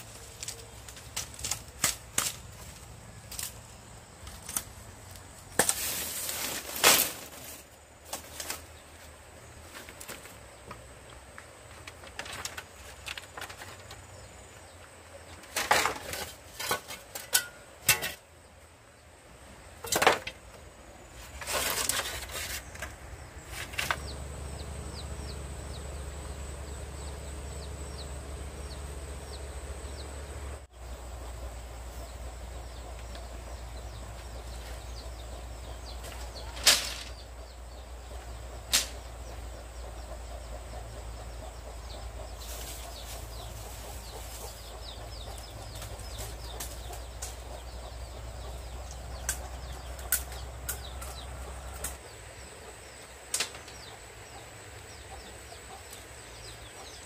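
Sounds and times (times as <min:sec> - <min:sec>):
low hum: 0:22.7 - 0:36.4.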